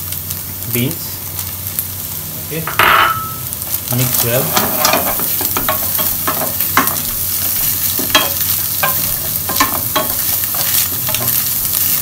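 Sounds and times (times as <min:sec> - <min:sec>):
food sizzling in oil: 0:00.0 - 0:12.0
spatula scraping frying pan: 0:04.3 - 0:12.0.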